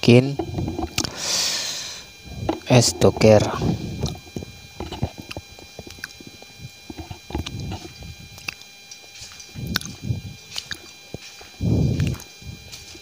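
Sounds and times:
faint high whine: 0:00.0 - 0:13.0
flip-flop footsteps on tiles: 0:10.5 - 0:11.6.

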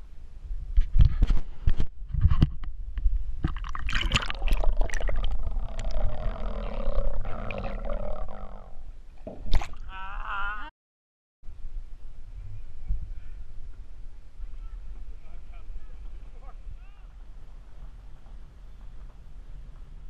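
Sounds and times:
water splashing: 0:03.4 - 0:10.0
muffled underwater gurgling: 0:03.6 - 0:08.8.

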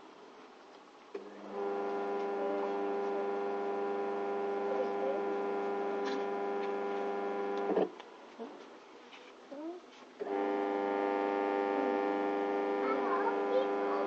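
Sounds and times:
washing machine motor humming: 0:01.2 - 0:07.9, 0:10.2 - 0:14.0.

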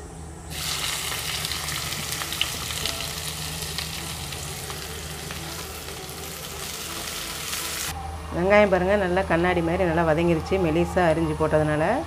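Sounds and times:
onions sizzling in oil: 0:00.5 - 0:07.9.

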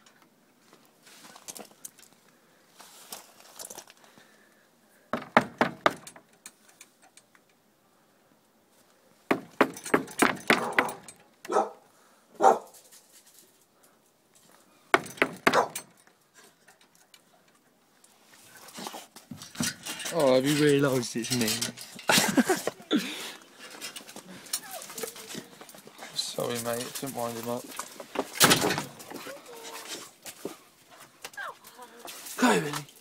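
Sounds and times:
dog barking: 0:10.6 - 0:11.8, 0:12.4 - 0:12.7, 0:15.5 - 0:15.8.

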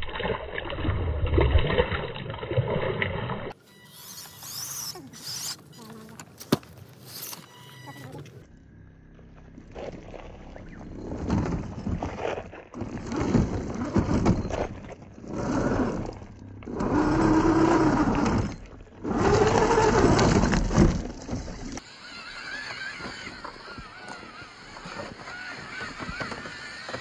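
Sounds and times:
electric motor whining: 0:03.6 - 0:06.2, 0:07.0 - 0:08.5, 0:15.3 - 0:20.6, 0:21.7 - 0:27.0
tyres crunching over loose rocks: 0:05.3 - 0:07.5, 0:09.6 - 0:16.0, 0:23.0 - 0:27.0.

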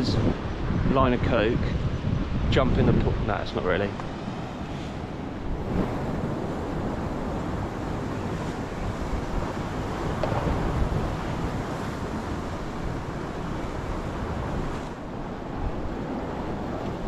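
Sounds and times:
wind buffeting microphone: 0:00.0 - 0:17.0
sea swell breaking on rocks: 0:04.4 - 0:15.1.

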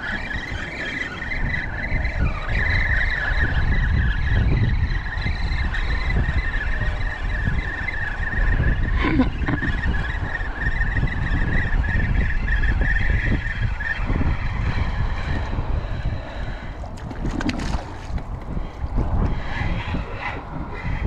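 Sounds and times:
wavering high whine: 0:00.0 - 0:21.0
wind buffeting microphone: 0:00.0 - 0:21.0
fish splashing in water: 0:16.8 - 0:18.5.

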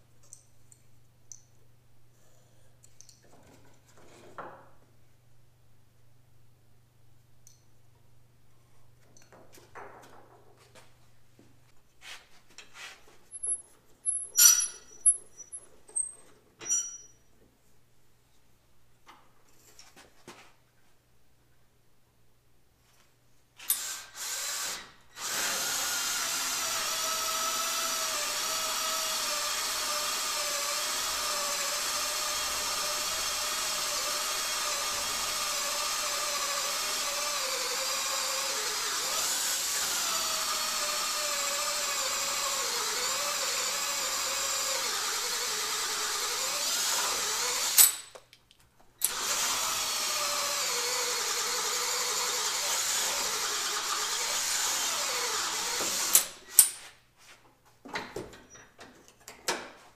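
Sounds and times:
power drill motor whine: 0:23.7 - 0:47.8, 0:49.0 - 0:56.3.

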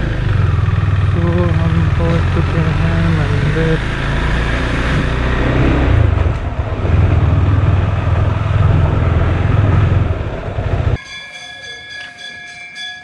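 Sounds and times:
motorcycle engine running: 0:00.0 - 0:11.0
steady ringing tone: 0:11.0 - 0:13.0.

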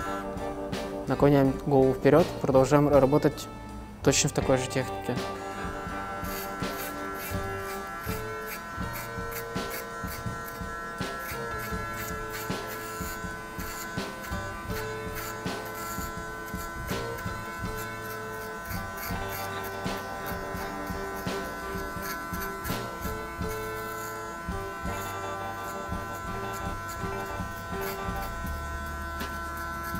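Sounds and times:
background music with a beat: 0:00.0 - 0:01.6
electric hair clipper humming: 0:00.0 - 0:29.9.

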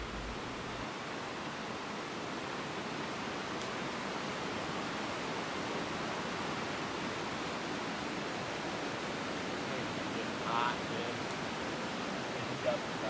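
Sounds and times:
steady rushing noise: 0:00.0 - 0:00.9.

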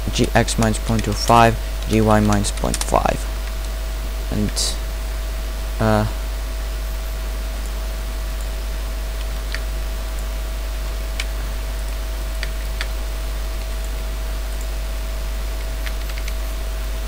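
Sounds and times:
electrical hum and hiss: 0:00.0 - 0:17.0
faint steady whine: 0:00.0 - 0:17.0
keyboard clicks: 0:00.4 - 0:03.8, 0:09.2 - 0:10.3, 0:15.6 - 0:16.4.

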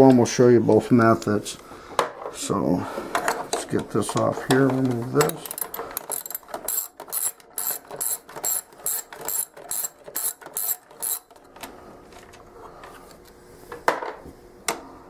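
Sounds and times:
ratchet wrench clicking: 0:05.3 - 0:11.3.

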